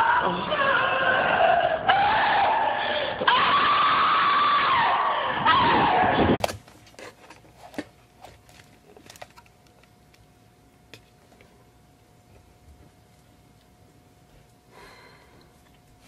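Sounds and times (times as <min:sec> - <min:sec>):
long high scream: 0:00.0 - 0:06.4
faint steady hum: 0:00.0 - 0:16.0.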